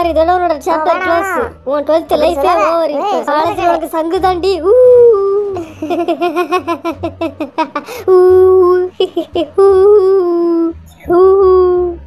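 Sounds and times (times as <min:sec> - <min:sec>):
laughter in bursts: 0:05.6 - 0:08.0.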